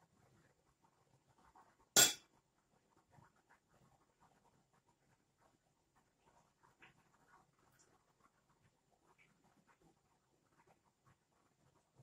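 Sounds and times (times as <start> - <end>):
soft rustling of pastry: 0.0 - 12.0
metal spoon clinking on bowl: 2.0 - 2.2.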